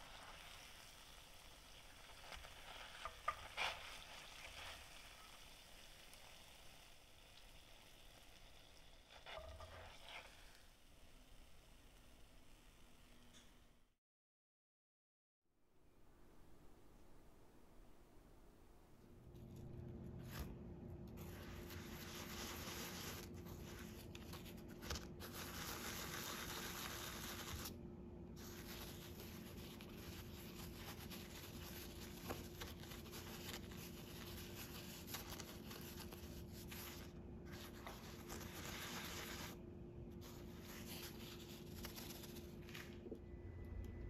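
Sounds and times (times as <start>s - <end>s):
faint steady hum: 15.6s - 44.0s
sugar grating and rustling: 21.2s - 27.8s, 28.4s - 39.6s.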